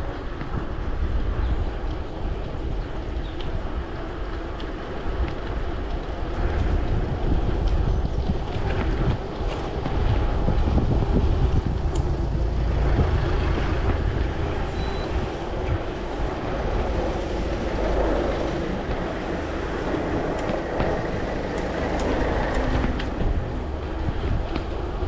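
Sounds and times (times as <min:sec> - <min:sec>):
road rumble: 0:00.0 - 0:25.0
wind buffeting: 0:00.0 - 0:25.0
short high electronic beep: 0:14.7 - 0:15.2.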